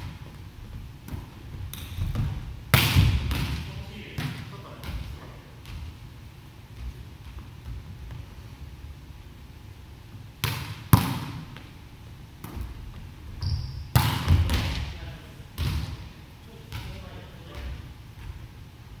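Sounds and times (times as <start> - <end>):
volleyball smacks on wooden floor: 1.1 - 3.6, 10.4 - 11.6.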